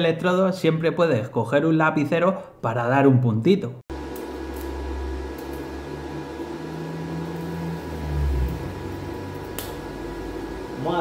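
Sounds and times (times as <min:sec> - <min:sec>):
welding arc humming and buzzing: 0:03.9 - 0:11.0.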